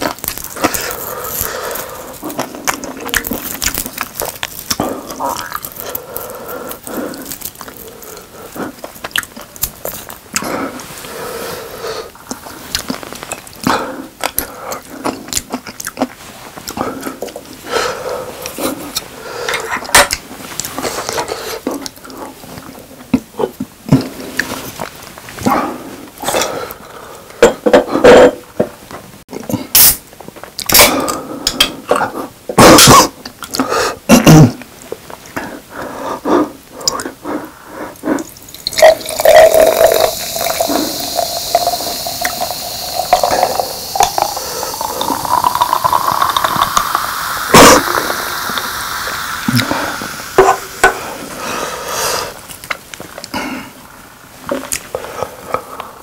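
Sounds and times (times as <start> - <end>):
soda pouring and fizzing: 38.3 - 51.4.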